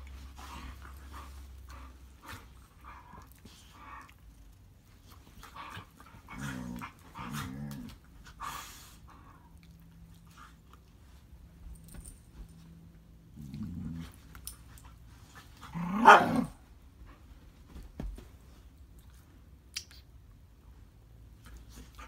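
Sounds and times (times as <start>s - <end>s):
dog growling low: 6.2s - 8.0s, 13.3s - 14.2s.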